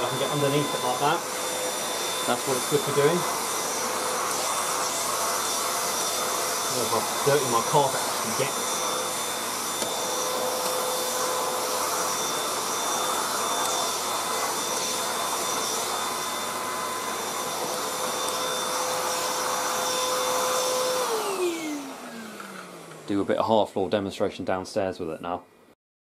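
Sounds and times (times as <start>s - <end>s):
vacuum motor winding down: 0.0s - 23.5s
handheld vacuum cleaner running: 0.0s - 23.6s.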